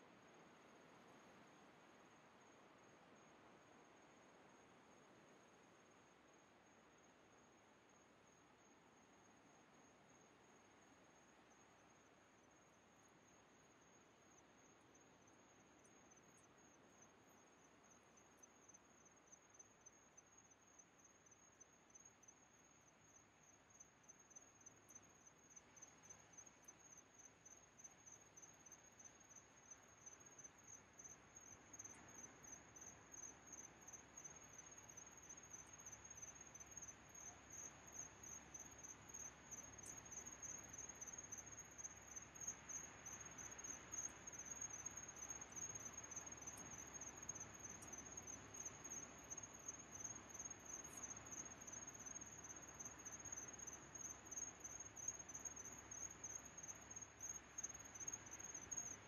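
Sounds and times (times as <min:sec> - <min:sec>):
crickets chirping: 0:00.0 - 0:59.0
soft hiss: 0:00.0 - 0:59.0.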